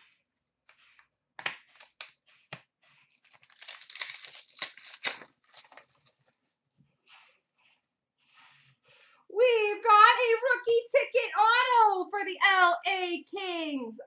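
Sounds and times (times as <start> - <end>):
cards clicking and rustling: 0.7 - 6.3
wrapper tearing and crinkling: 3.1 - 6.2.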